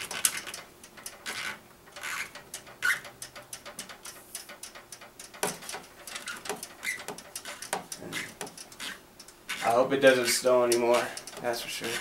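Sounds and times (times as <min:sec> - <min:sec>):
tubing rustling and scraping: 0:03.8 - 0:12.0.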